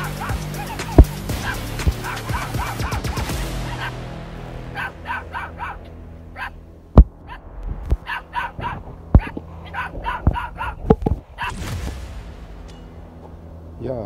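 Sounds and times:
puppy yipping: 0:00.0 - 0:04.0, 0:04.8 - 0:06.6, 0:08.0 - 0:11.5
sharp knocks: 0:07.0 - 0:07.2.

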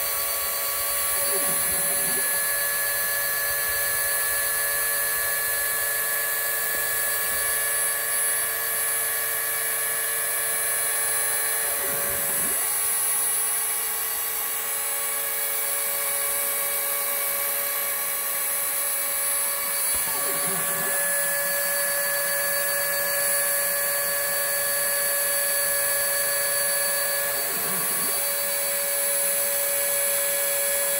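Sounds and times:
rotary tool high whine: 0:00.0 - 0:30.9.

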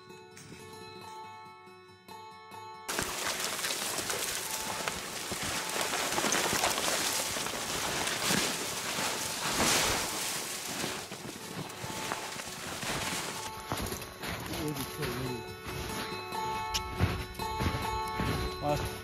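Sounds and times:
branches scraping against clothing: 0:02.9 - 0:14.8
boots crunching in snow: 0:02.9 - 0:19.0.

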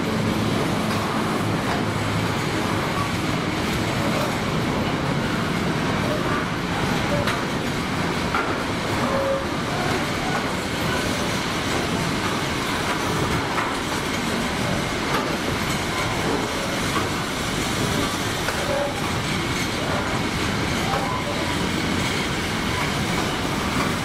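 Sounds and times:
freight train wagons rolling: 0:00.0 - 0:24.0
wheels clicking on rails: 0:00.0 - 0:24.0.

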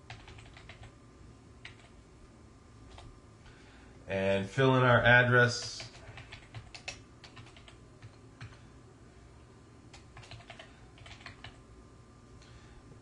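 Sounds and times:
computer keyboard typing: 0:00.0 - 0:00.9, 0:01.6 - 0:02.0, 0:02.9 - 0:03.1, 0:05.6 - 0:08.6, 0:09.9 - 0:11.6.

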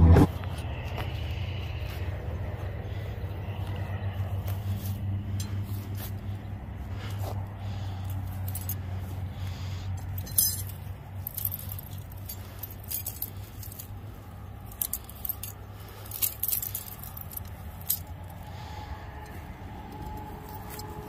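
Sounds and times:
steady low hum: 0:00.0 - 0:21.0
metal gear jingling and clinking: 0:07.1 - 0:21.0.

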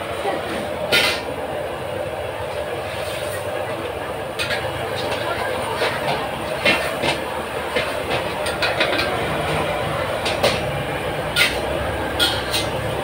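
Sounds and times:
gas burner roaring: 0:00.0 - 0:13.0
metal spatula scraping a wok: 0:10.2 - 0:12.8.

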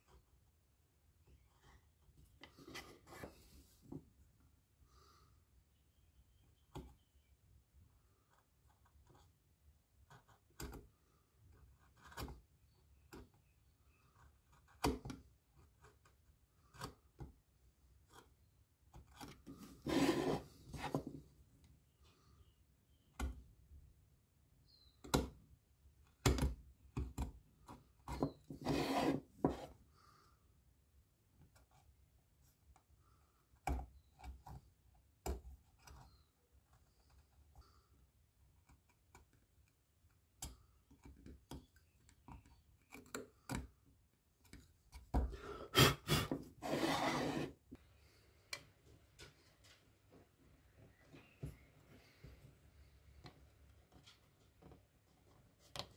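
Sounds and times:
wood rubbing: 0:19.6 - 0:21.1, 0:28.2 - 0:29.6, 0:45.2 - 0:47.6.

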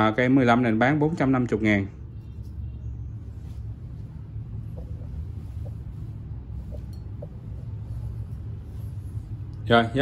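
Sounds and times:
low room rumble: 0:00.0 - 0:10.0.

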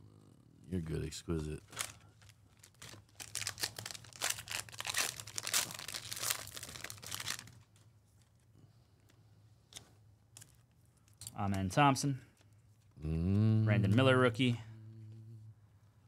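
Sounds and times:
plastic wrapper tearing and crackling: 0:01.6 - 0:08.4.

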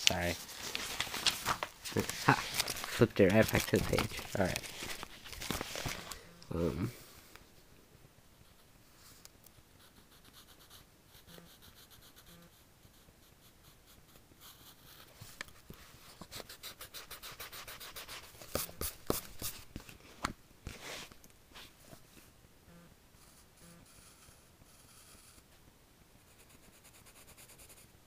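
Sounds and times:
pencil scratching on paper: 0:09.8 - 0:15.2, 0:16.1 - 0:19.6, 0:23.2 - 0:25.4, 0:26.3 - 0:27.8.

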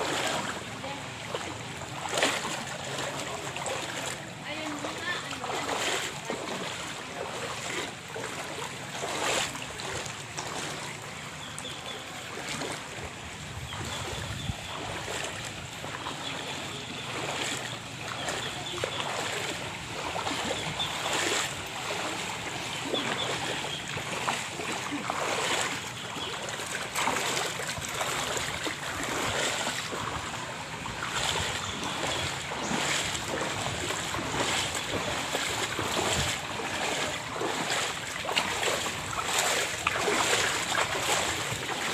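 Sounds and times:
feet splashing through water: 0:00.0 - 0:41.9.

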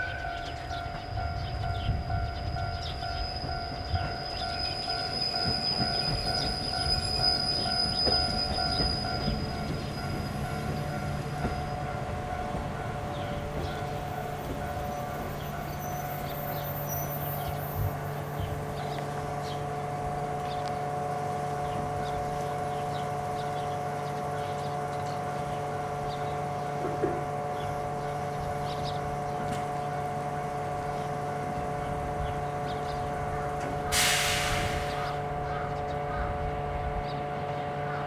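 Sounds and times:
train equipment humming: 0:00.0 - 0:38.0
loud hiss: 0:33.9 - 0:35.1.

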